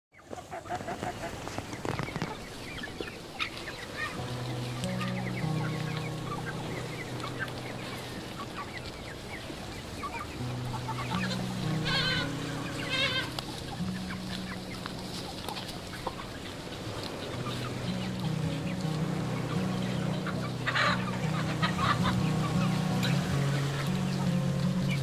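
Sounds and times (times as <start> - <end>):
chicks clucking and peeping: 0.2 - 25.0
chicken warbling calls: 4.9 - 24.3.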